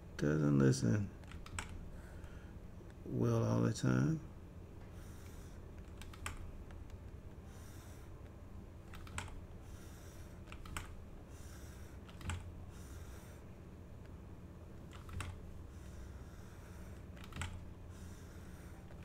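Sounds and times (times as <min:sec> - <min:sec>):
faint low hum: 0:00.0 - 0:19.0
computer key clicks: 0:01.2 - 0:01.8, 0:05.8 - 0:07.0, 0:08.9 - 0:09.4, 0:10.5 - 0:10.9, 0:12.1 - 0:12.5, 0:14.9 - 0:15.4, 0:17.2 - 0:17.6.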